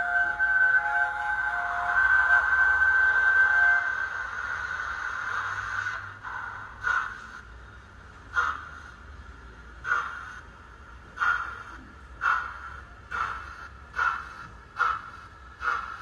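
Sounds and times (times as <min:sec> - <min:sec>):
steam locomotive exhaust chuffs: 0:00.0 - 0:16.0
steam hissing from speaker: 0:00.8 - 0:07.5, 0:08.3 - 0:09.0, 0:09.8 - 0:10.4, 0:11.1 - 0:16.0.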